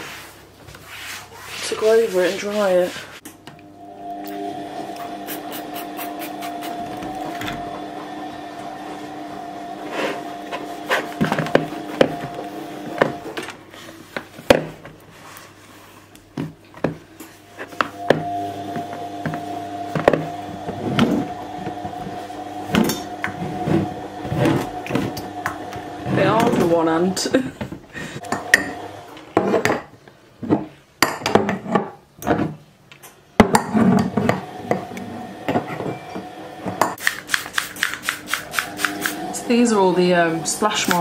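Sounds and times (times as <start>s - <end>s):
cloth wiping a worktop: 0.0s - 3.2s, 5.1s - 7.3s, 9.8s - 12.9s, 15.1s - 16.1s
items knocking and clattering: 27.5s - 32.6s.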